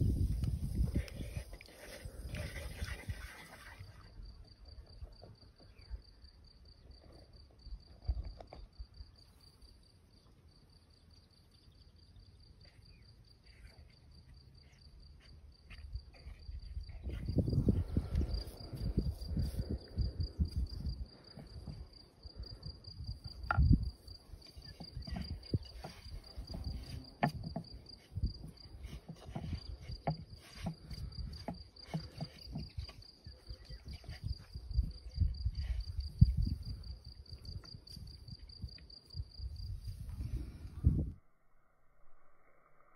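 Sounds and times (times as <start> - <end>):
dough worked in wooden bowl: 0.0 - 5.8, 12.6 - 37.7
cricket trilling: 0.0 - 41.2.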